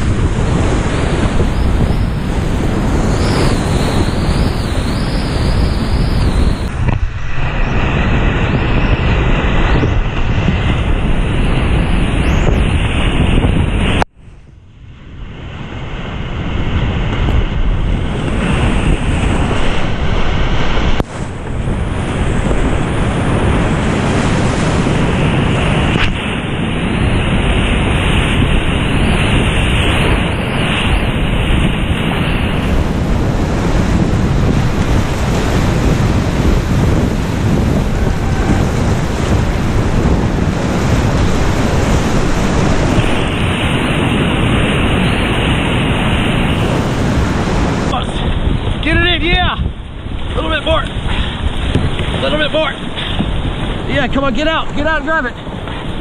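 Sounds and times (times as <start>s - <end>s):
wind buffeting microphone: 0.0s - 56.0s
whitewater rapids roaring: 22.2s - 48.4s.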